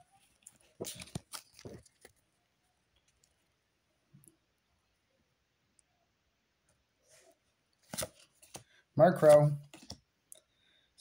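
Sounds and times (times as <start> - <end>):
faint clicks of cards handled: 0.4 - 2.2, 7.7 - 10.5
wrapper crinkling as torn open: 0.4 - 2.2.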